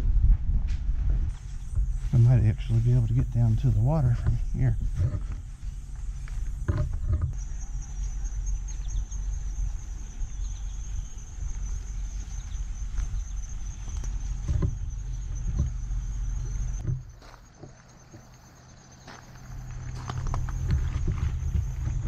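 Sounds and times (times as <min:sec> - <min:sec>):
microphone handling noise: 0:00.0 - 0:07.4, 0:13.9 - 0:17.1
wind rumble on microphone: 0:00.0 - 0:17.2, 0:19.7 - 0:22.0
insect trill: 0:01.3 - 0:22.0
soft thumps: 0:13.9 - 0:18.3.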